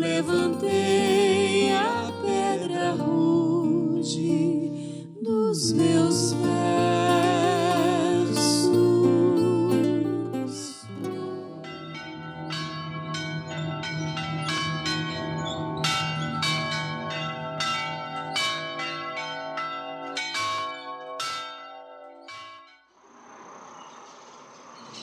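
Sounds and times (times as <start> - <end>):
church bells ringing: 10.8 - 22.8.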